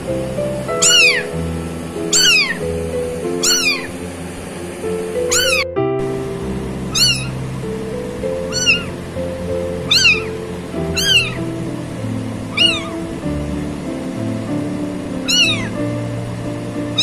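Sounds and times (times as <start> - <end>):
kitten mewing: 0.8 - 1.4, 2.1 - 2.6, 3.4 - 4.0, 5.3 - 5.6, 6.9 - 7.4, 8.4 - 9.0, 9.8 - 11.4, 12.5 - 13.0, 15.2 - 15.8.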